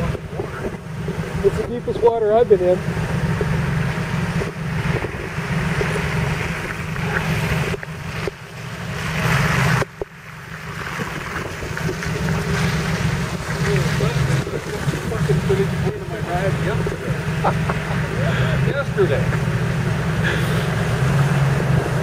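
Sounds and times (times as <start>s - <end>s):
engine idling: 0.0s - 22.0s
wind buffeting microphone: 2.8s - 17.4s.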